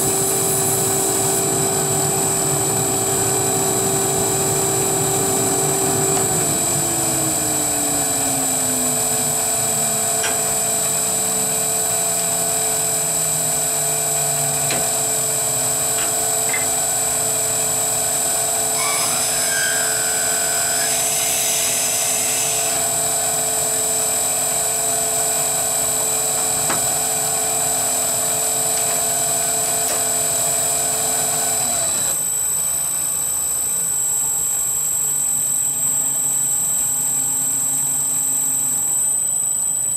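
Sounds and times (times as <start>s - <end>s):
drill cutting wood hiss: 0.0s - 7.3s, 18.6s - 23.7s
wood lathe whine: 0.0s - 32.4s.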